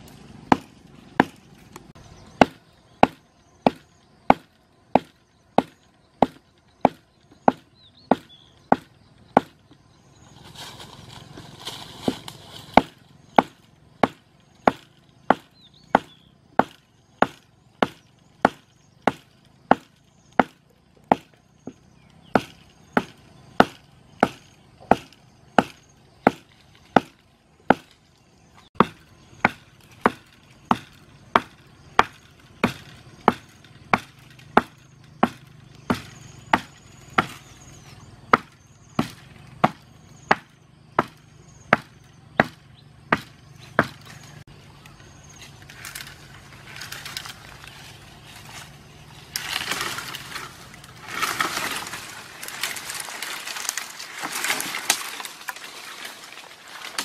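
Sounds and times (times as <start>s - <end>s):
rustling hiss: 10.1s - 13.8s.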